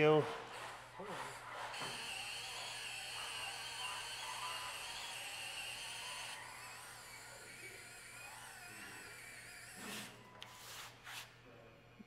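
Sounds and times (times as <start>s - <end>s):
electric gear motors whining: 0.8s - 10.4s.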